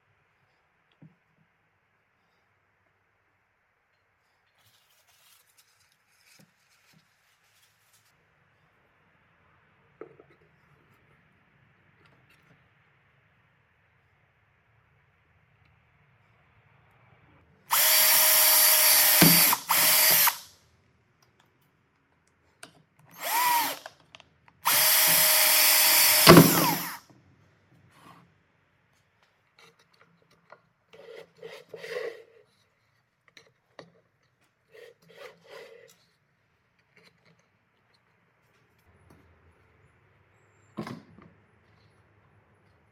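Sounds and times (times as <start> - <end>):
electric drill through plastic: 17.7 - 20.5, 23.2 - 24.0, 24.6 - 27.0.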